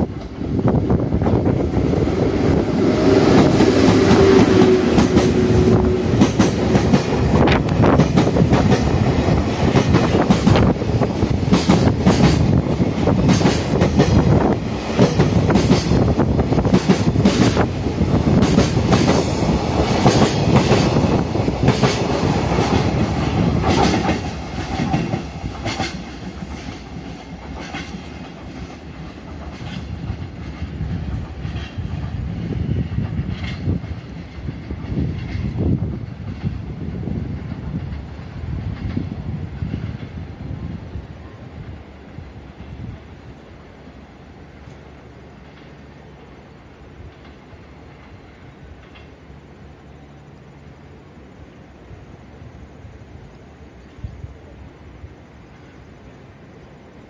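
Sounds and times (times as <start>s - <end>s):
freight train passing: 0.0s - 57.0s
wheels clicking over rail joints: 44.6s - 49.4s.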